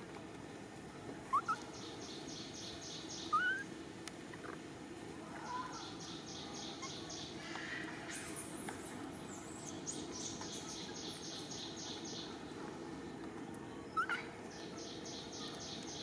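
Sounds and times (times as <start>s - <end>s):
short rising chirp calls: 1.3s - 3.7s.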